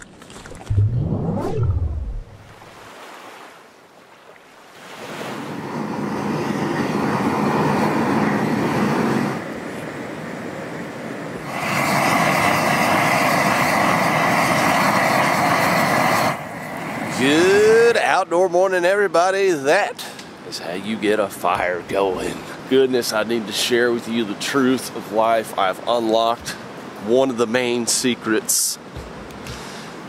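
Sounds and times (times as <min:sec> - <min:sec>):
rushing wind-like noise: 0:05.0 - 0:17.6
propane torch flame hissing: 0:05.5 - 0:09.5, 0:11.3 - 0:17.8.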